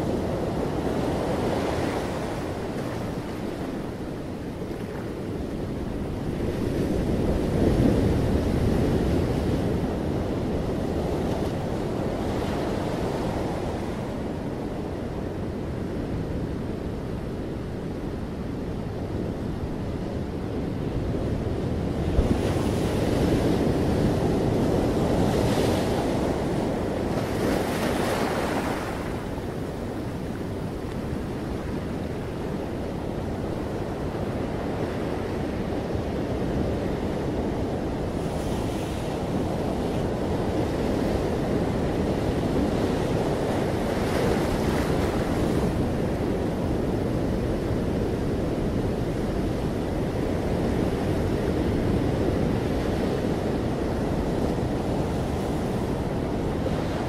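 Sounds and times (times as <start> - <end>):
ocean surf breaking: 22.6 - 35.6.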